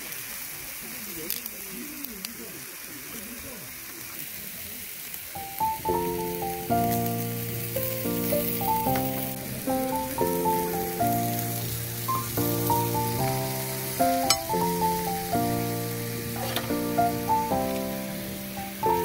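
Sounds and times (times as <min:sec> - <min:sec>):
meat sizzling in a pan: 0:00.0 - 0:19.0
background music: 0:05.4 - 0:19.0.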